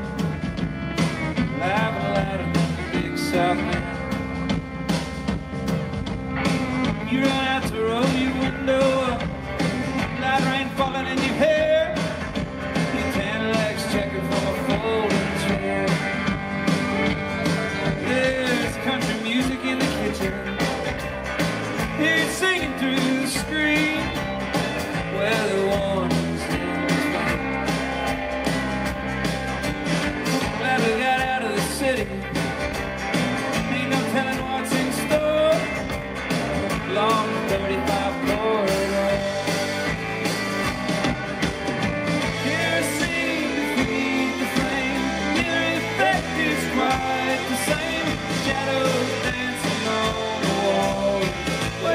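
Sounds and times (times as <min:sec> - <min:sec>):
country band playing: 0:00.0 - 0:51.9
man singing: 0:01.4 - 0:04.5, 0:06.8 - 0:21.0, 0:21.8 - 0:24.3, 0:25.0 - 0:28.1, 0:30.2 - 0:32.6, 0:33.4 - 0:35.9, 0:36.6 - 0:39.7, 0:42.3 - 0:51.9.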